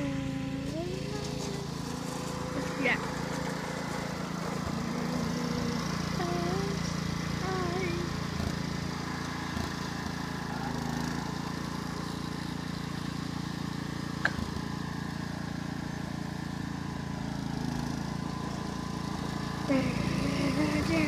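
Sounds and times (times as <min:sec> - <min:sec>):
lawn mower engine running: 0:00.0 - 0:21.0.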